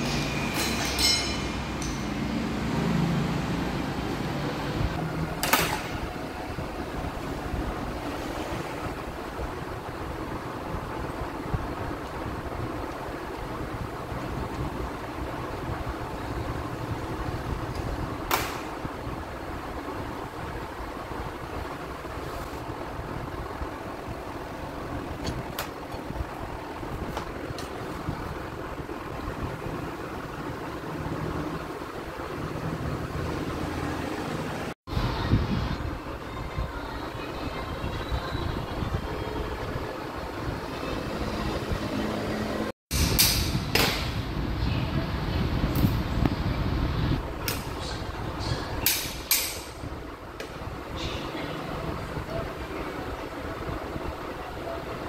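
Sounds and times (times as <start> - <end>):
hand tool clinking on metal: 0.0 - 2.4
low workshop noise: 0.0 - 55.0
running fan: 0.0 - 55.0.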